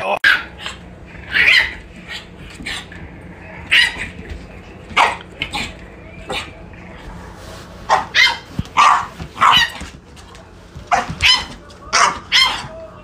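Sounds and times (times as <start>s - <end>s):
puppy barking: 0.2s - 3.0s, 3.6s - 4.2s, 5.0s - 6.6s, 7.9s - 9.9s, 10.9s - 12.8s.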